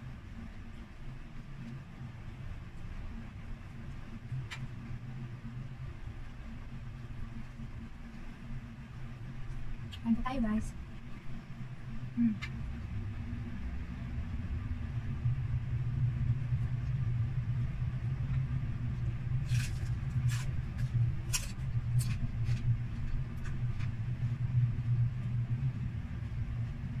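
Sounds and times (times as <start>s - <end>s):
steady low hum: 0.0s - 27.0s
crunchy chewing: 19.4s - 24.0s.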